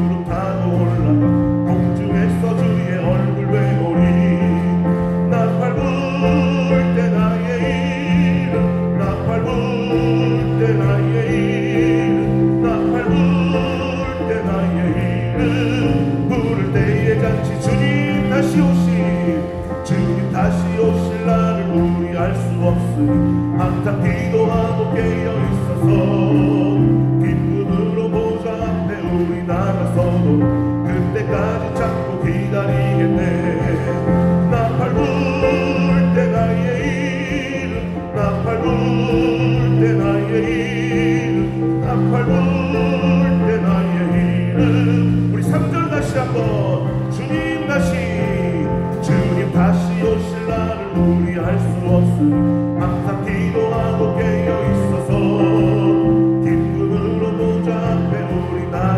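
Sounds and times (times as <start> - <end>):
keyboard: 0.0 - 58.9.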